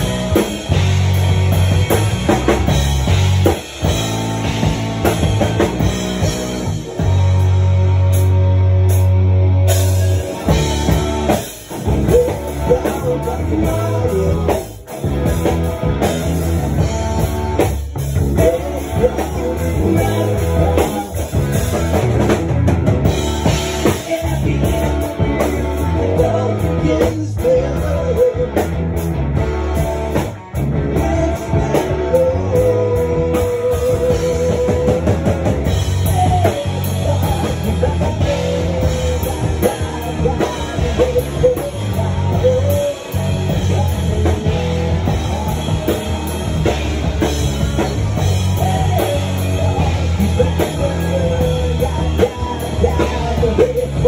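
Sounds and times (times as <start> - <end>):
bass guitar: 0.0 - 54.0
drum kit: 0.0 - 54.0
electric guitar: 0.0 - 54.0
person singing: 9.9 - 22.3, 23.2 - 29.1, 29.8 - 54.0.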